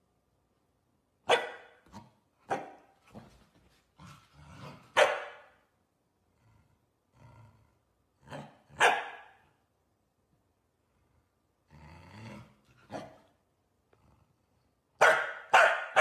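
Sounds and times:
dog barking: 1.2s - 1.8s, 2.5s - 2.9s, 4.9s - 5.6s, 8.7s - 9.5s, 15.0s - 16.0s.

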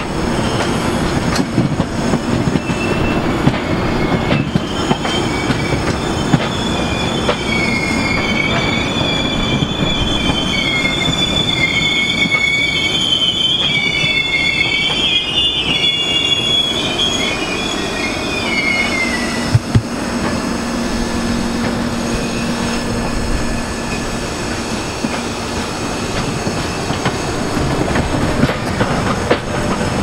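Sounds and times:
train coaches rumbling past: 0.0s - 30.0s
wheels squealing on rails: 0.0s - 30.0s
wheels clicking over rail joints: 25.0s - 30.0s.

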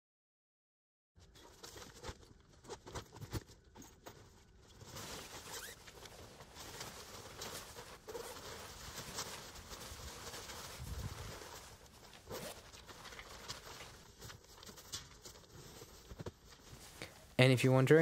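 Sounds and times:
fabric rustling: 1.2s - 17.4s
zipper: 5.2s - 6.2s, 12.1s - 12.7s.

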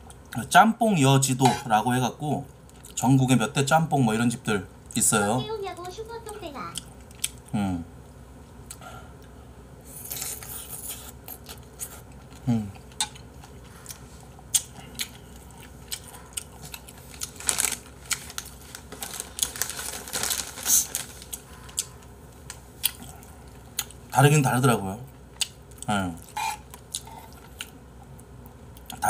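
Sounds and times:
chewing: 6.7s - 7.4s, 8.6s - 19.6s, 21.2s - 24.0s, 25.1s - 29.0s.

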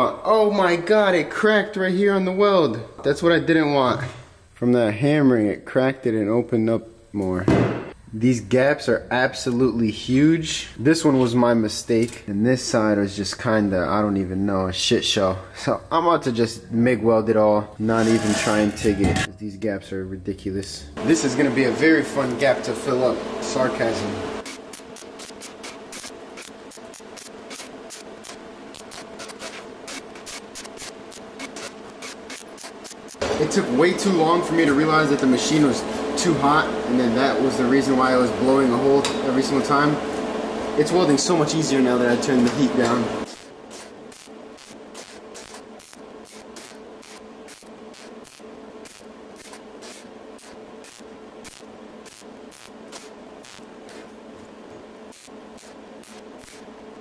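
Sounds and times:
welding arc sizzling and crackling: 21.1s - 57.0s.

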